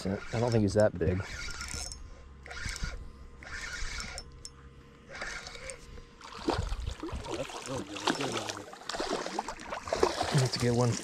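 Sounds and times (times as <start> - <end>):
fishing reel cranking: 0.0 - 5.9
fish splashing at water surface: 6.2 - 11.0.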